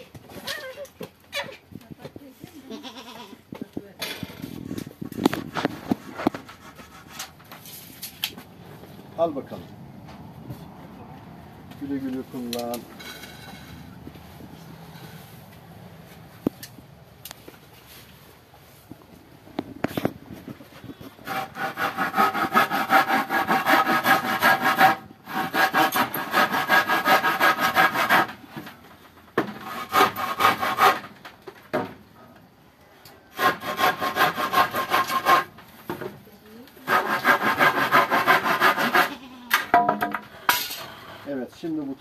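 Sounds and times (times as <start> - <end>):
hand saw cutting wood: 5.2 - 7.7, 21.2 - 28.8, 29.4 - 31.2, 33.3 - 35.6, 36.8 - 39.3.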